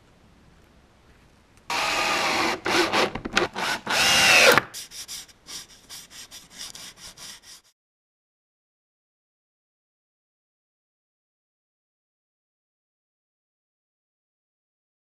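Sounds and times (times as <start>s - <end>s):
power drill driving screw into wood: 1.7s - 4.7s
rubbing strokes: 4.7s - 7.8s.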